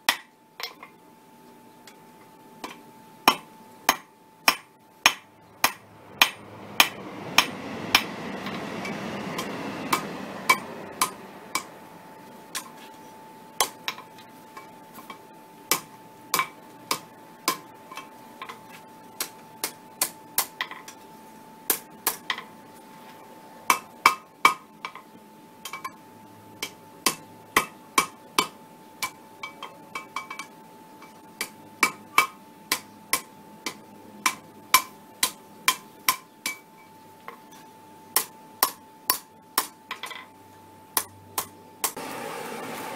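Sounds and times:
hammer striking metal on anvil: 0.1 - 0.8, 2.6 - 11.8, 13.6 - 18.6, 23.7 - 25.0, 26.6 - 36.9, 38.2 - 40.3, 41.0 - 42.0.

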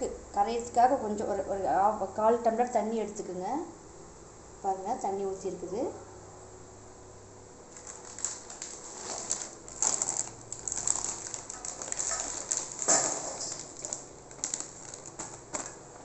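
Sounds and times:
sugar pieces pattering into steel pan: 7.7 - 15.8
plastic bag crinkling: 7.7 - 16.0.

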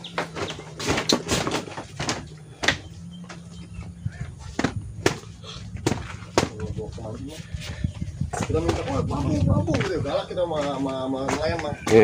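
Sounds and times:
sharp knocks and clatters: 0.1 - 3.5.

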